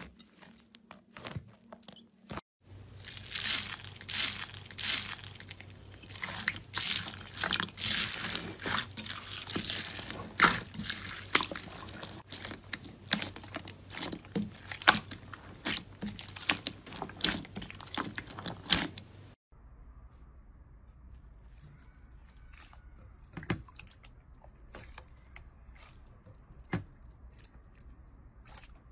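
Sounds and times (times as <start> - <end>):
wet squishing slime: 0.0 - 19.4, 21.1 - 28.9
foam beads crackling in slime: 2.9 - 19.0.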